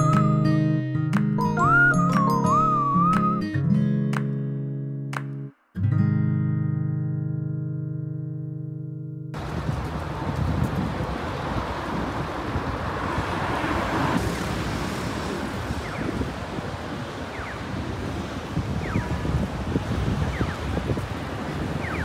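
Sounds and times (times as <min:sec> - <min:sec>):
city street traffic: 0:09.3 - 0:22.0
vehicle passing: 0:09.4 - 0:17.3
wind rumbling on microphone: 0:09.4 - 0:22.0.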